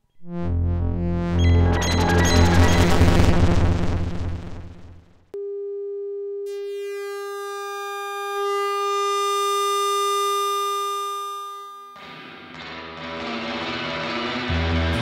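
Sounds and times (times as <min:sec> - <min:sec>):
steady buzzy electronic tone: 0:00.0 - 0:05.3, 0:06.5 - 0:12.0.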